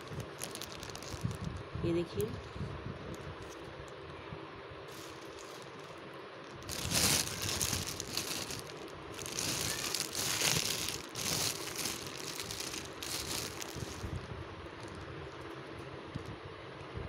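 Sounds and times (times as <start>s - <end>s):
plastic bag crinkling: 0.0s - 1.6s, 4.9s - 15.0s.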